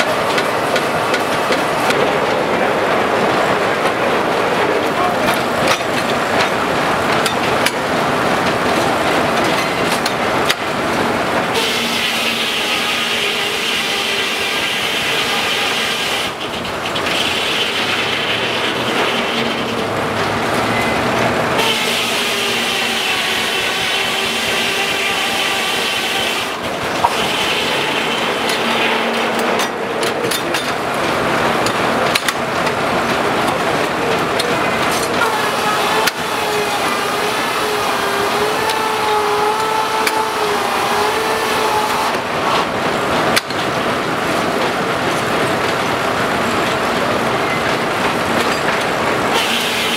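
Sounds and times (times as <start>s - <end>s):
clattering sawmill machinery: 0.0s - 49.9s
saw whine: 11.6s - 16.4s, 21.6s - 29.7s, 35.2s - 42.2s, 49.3s - 49.9s.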